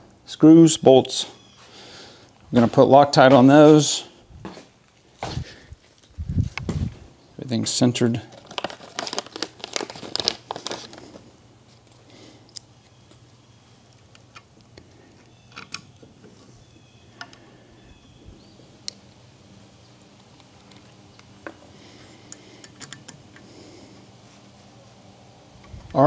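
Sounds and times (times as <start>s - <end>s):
low steady hum: 0.0s - 26.0s
plastic bag crinkling: 8.1s - 12.6s
small clicks and taps of metal parts: 22.3s - 23.4s.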